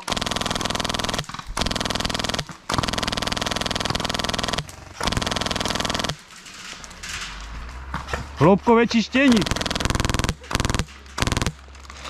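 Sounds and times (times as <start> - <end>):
electric toy gun firing bursts: 0.0 - 6.2, 9.3 - 11.6.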